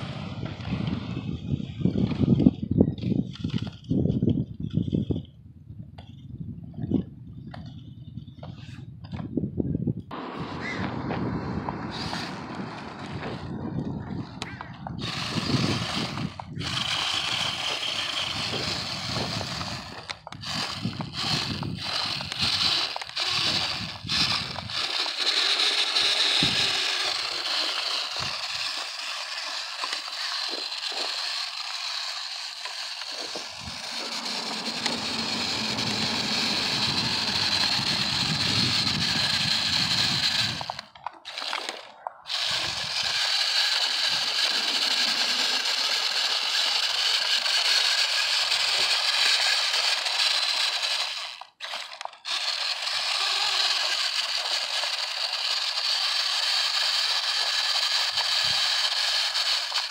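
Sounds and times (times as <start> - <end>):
rc car motor whine: 0.0 - 5.2, 10.1 - 59.9.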